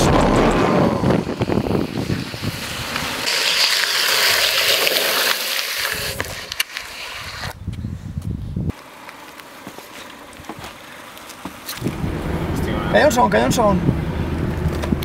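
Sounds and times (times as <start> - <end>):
wind on microphone: 0.0 - 3.3, 7.2 - 8.7, 11.8 - 15.0
longboard rolling on asphalt: 0.5 - 7.8, 8.7 - 15.0
puck scraping across asphalt: 1.2 - 7.6, 8.7 - 12.0.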